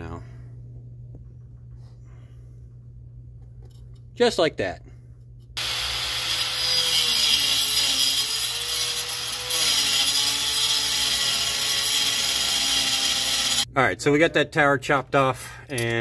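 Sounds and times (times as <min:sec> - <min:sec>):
angle grinder cutting metal: 0:05.6 - 0:13.7.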